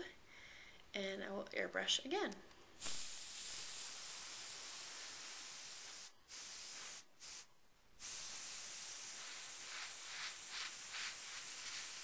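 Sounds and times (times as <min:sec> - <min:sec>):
airbrush hissing: 0:02.8 - 0:12.0.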